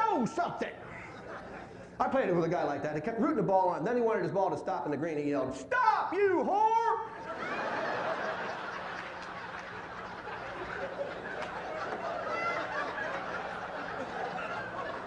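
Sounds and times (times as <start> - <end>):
audience laughing: 0.8 - 2.0, 7.1 - 15.0.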